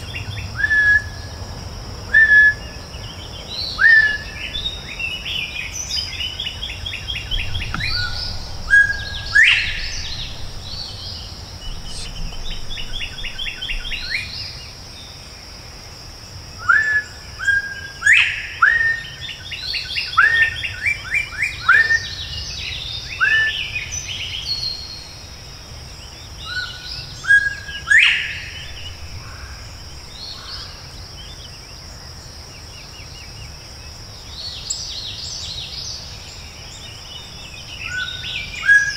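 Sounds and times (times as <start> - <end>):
high insect drone: 0.0 - 38.9
birds chattering: 2.7 - 14.9, 26.1 - 31.6
quail whistling call: 7.3 - 10.4.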